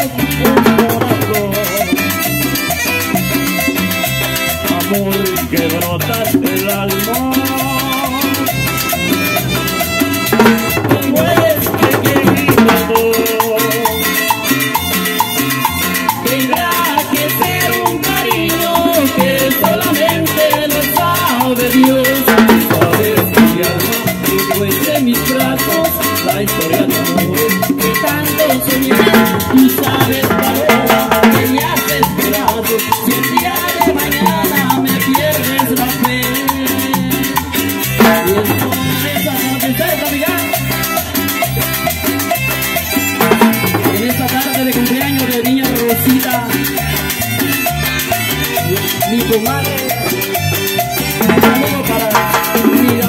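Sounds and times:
latin band playing: 0.0 - 53.0
metal scraper rhythm: 28.0 - 33.1.

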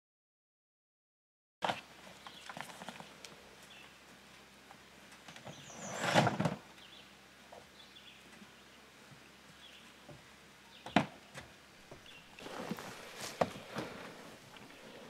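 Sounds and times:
plastic case sliding out: 5.6 - 6.6.

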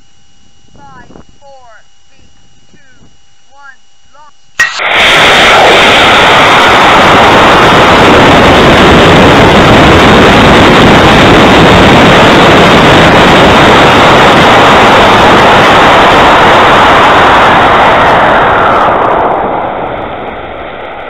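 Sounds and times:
rocket motor rushing: 4.6 - 20.6.

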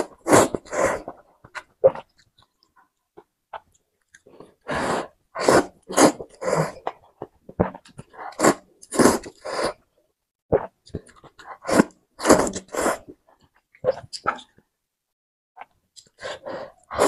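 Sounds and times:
slurping noodles: 0.0 - 2.1, 4.3 - 9.8, 10.5 - 13.2, 16.2 - 17.0.

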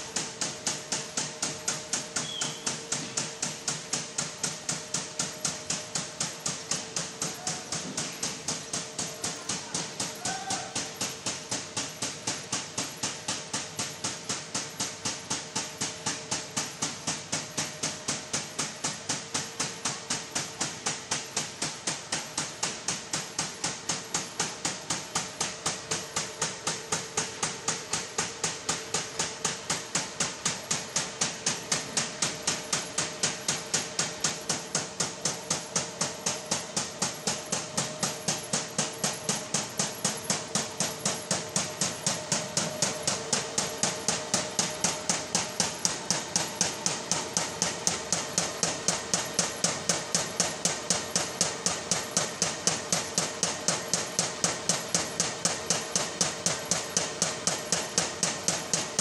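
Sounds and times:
machine hum: 25.4 - 53.5.

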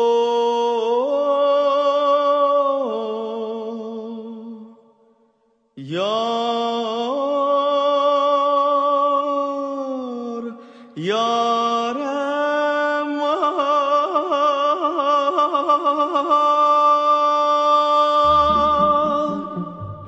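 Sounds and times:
man singing held notes: 18.2 - 20.0.

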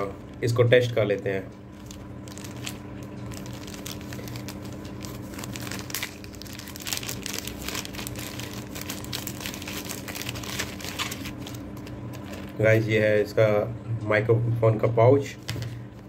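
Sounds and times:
packaging crinkling: 1.7 - 12.8.

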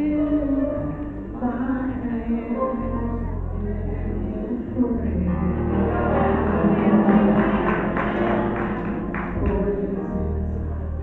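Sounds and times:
choir singing gospel: 5.3 - 10.2.

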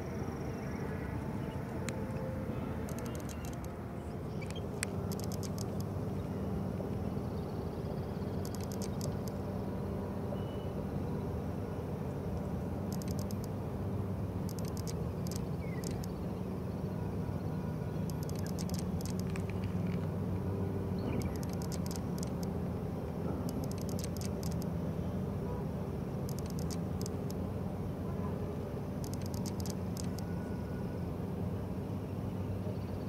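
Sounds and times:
distant engines humming: 0.0 - 33.0
rapid high-pitched ticking: 2.8 - 3.7, 4.4 - 6.0, 8.3 - 9.4, 12.9 - 13.6, 14.4 - 16.2, 18.0 - 19.5, 21.1 - 22.6, 23.4 - 24.7, 26.2 - 27.4, 29.0 - 30.3.

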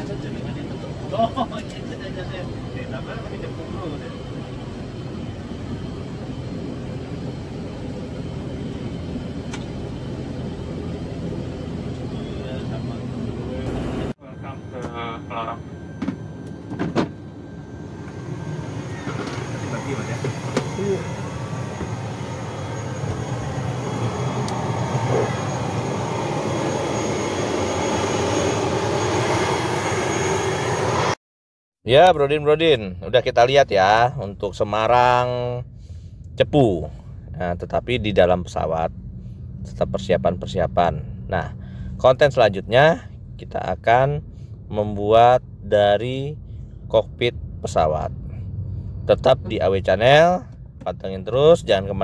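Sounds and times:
faint high whine: 0.0 - 30.9
turboprop cabin drone: 0.0 - 31.2, 31.9 - 52.0.

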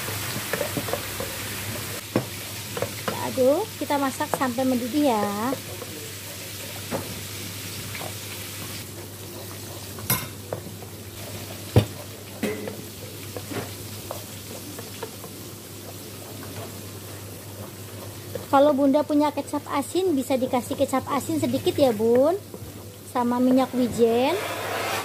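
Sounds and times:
sizzling in a wok: 0.0 - 25.0.

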